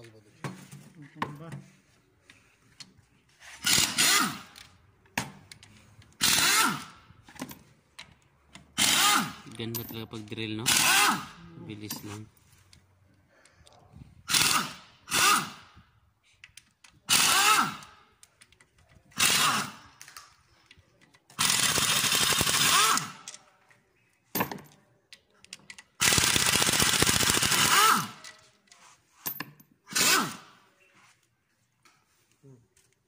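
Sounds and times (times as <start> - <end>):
pneumatic impact wrench whirring: 3.5 - 4.8, 6.0 - 7.5, 8.6 - 9.5, 10.6 - 11.4, 14.2 - 15.8, 17.0 - 18.1, 19.1 - 20.0, 21.4 - 23.3, 26.0 - 28.5, 29.8 - 30.7.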